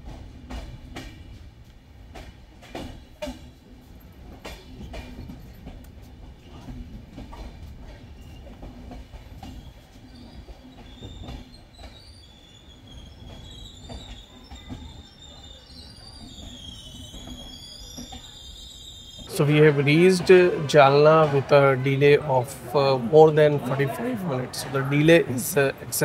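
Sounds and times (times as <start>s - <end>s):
train rolling rumble: 0.0s - 26.0s
wheels knocking on rail joints: 4.2s - 18.3s
high wavering brake squeal: 9.5s - 20.9s.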